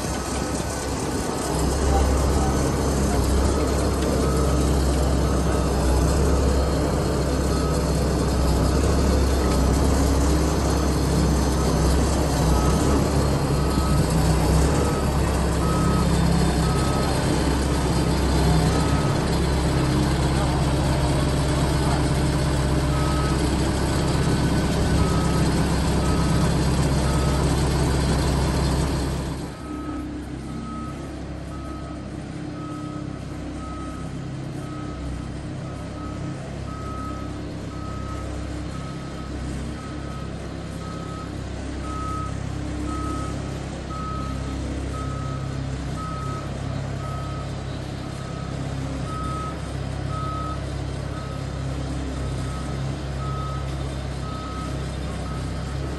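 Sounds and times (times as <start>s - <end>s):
vehicle engine running: 0.0s - 55.9s
reversing alarm beeping: 1.6s - 20.4s, 29.6s - 51.6s, 52.2s - 55.9s.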